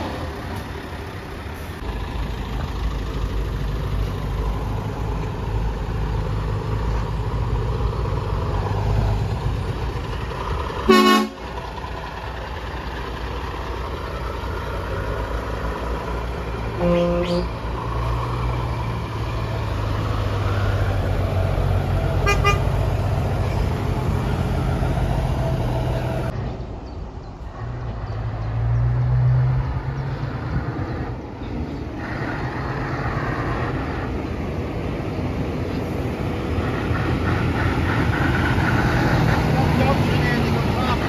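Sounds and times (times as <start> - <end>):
truck diesel engines passing: 0.0 - 41.0
truck horn toot: 10.9 - 11.5, 16.7 - 17.6, 22.2 - 22.8.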